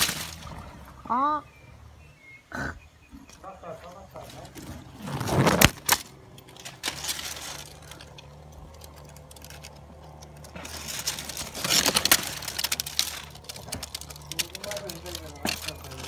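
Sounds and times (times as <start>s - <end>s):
dry palm fronds crackling: 0.0s - 1.4s, 3.3s - 16.0s.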